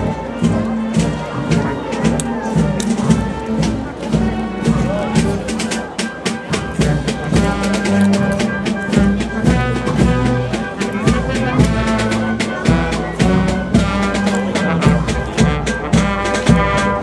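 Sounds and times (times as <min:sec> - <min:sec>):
brass band playing slow march: 0:00.0 - 0:17.0
drum strokes: 0:00.0 - 0:17.0.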